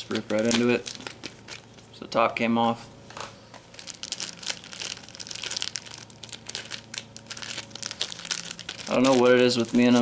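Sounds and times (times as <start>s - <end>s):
plastic packaging crinkling: 0.0s - 1.9s, 3.6s - 10.0s.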